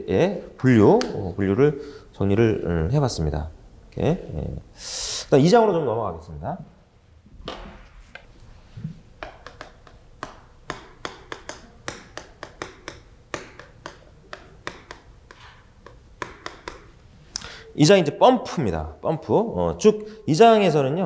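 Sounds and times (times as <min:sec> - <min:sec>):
chalk tapping and scraping blackboard: 0:08.1 - 0:17.0.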